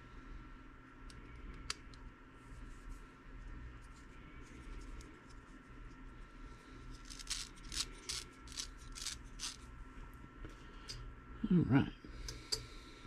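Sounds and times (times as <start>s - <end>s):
clicks and scrapes of small parts: 6.9s - 9.6s.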